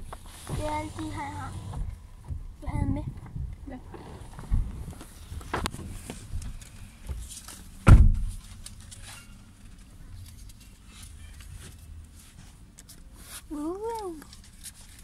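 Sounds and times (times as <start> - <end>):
loud thump: 7.8 - 8.3.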